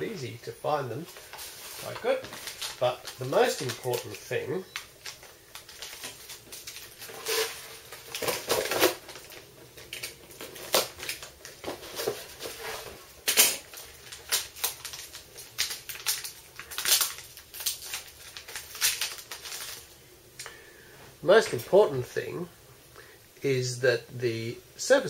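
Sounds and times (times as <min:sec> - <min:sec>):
plastic packaging crinkling: 0:01.0 - 0:20.0.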